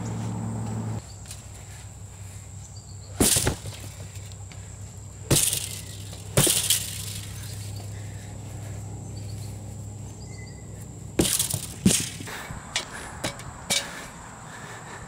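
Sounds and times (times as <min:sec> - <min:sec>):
tool striking heavy bag: 0:03.2 - 0:03.8, 0:05.3 - 0:07.0, 0:11.2 - 0:12.3.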